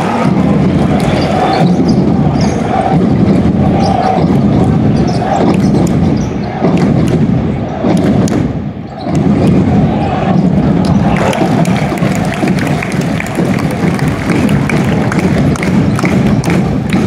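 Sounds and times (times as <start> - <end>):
crowd noise in arena: 0.0 - 17.0
sharp thumps and clicks: 4.1 - 8.5.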